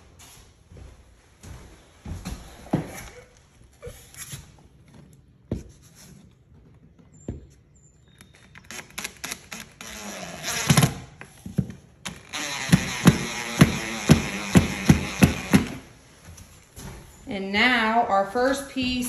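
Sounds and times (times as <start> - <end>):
cordless driver driving a screw: 8.5 - 11.0, 12.0 - 15.8.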